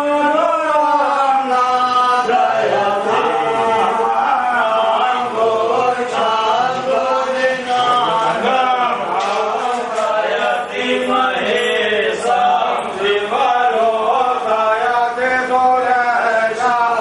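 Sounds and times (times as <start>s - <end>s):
men chanting mantras together: 0.0s - 17.0s.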